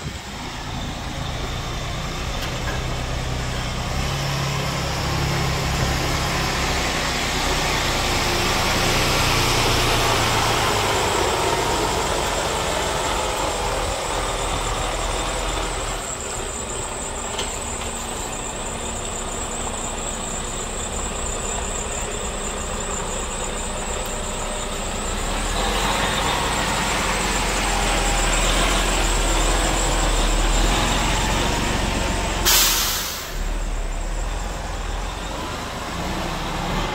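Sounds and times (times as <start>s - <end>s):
diesel truck engine running: 0.0s - 36.9s
air brake release: 32.4s - 33.7s.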